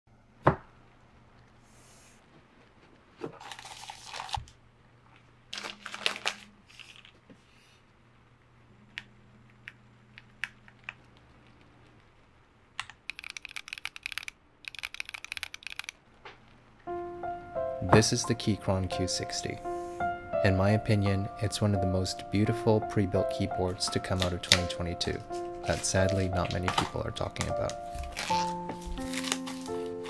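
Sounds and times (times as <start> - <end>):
plastic wrap tearing: 3.3 - 4.6, 5.5 - 7.2, 25.6 - 30.0
packaging crinkling: 3.3 - 7.2, 25.6 - 30.0
typing on mechanical keyboard: 12.8 - 16.0.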